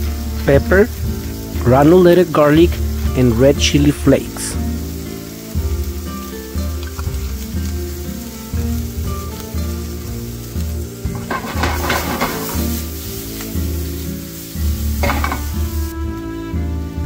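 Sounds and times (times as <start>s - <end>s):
background music: 0.0s - 17.0s
shrimp sizzling in a skillet: 0.0s - 17.0s
stirring in a pan: 4.8s - 15.6s.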